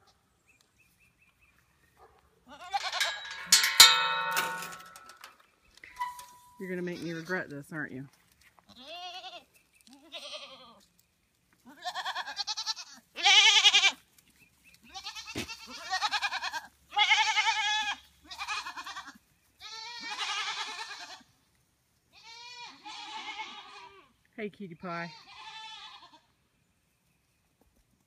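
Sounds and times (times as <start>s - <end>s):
goats bleating: 8.7s - 10.8s, 11.7s - 14.0s, 14.9s - 21.3s, 22.2s - 24.1s, 25.0s - 26.3s.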